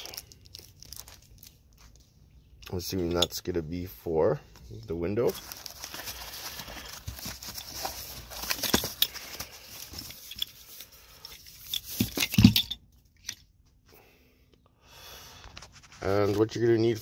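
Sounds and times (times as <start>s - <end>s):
cardboard and foam rustling: 0.0s - 2.0s, 4.7s - 12.6s.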